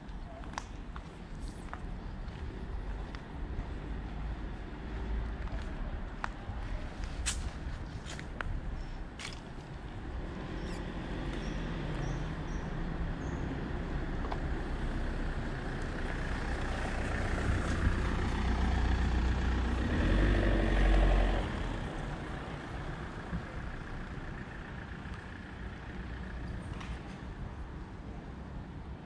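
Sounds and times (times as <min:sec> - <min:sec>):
vehicle driving past: 0:10.0 - 0:26.4.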